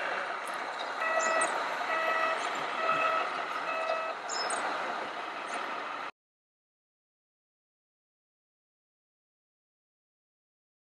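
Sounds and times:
steady background noise: 0:00.0 - 0:06.1
warning beeper: 0:01.0 - 0:04.2.

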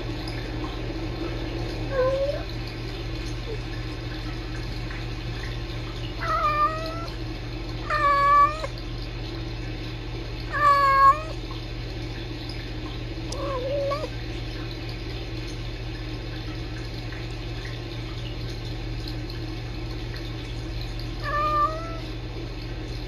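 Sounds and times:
steady background hum: 0:00.0 - 0:23.0
kitten meowing: 0:06.2 - 0:07.1, 0:07.9 - 0:08.7, 0:10.5 - 0:11.4, 0:21.2 - 0:22.0.

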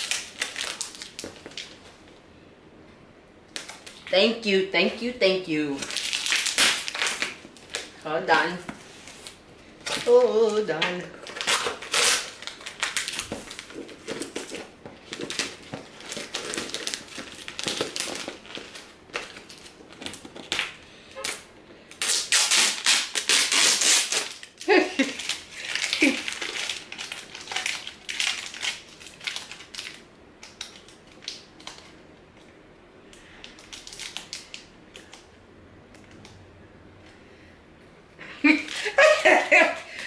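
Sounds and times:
plastic wrap crinkling and tearing: 0:00.0 - 0:01.8, 0:03.5 - 0:04.2, 0:05.7 - 0:32.0, 0:33.3 - 0:35.2.

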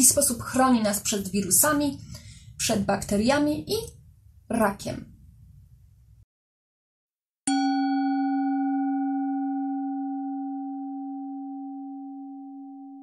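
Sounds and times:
bell-like chime ringing: 0:07.5 - 0:13.0.

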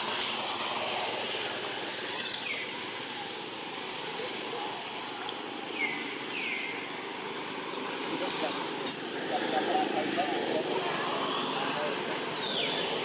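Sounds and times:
outdoor background noise: 0:00.0 - 0:13.0
high falling calls: 0:02.0 - 0:07.4.

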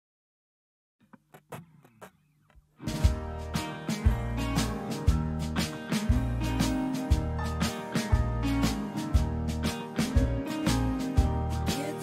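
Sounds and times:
background music: 0:02.8 - 0:12.0.

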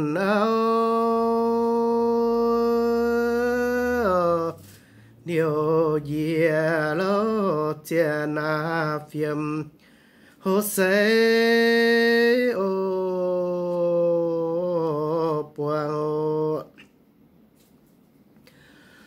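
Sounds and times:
person singing unaccompanied: 0:00.0 - 0:09.8, 0:10.4 - 0:16.9.

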